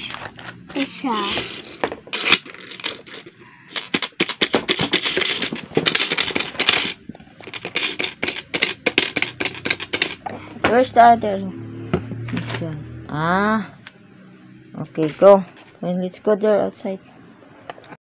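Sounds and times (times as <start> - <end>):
plastic toy parts clicking: 1.3 - 10.2.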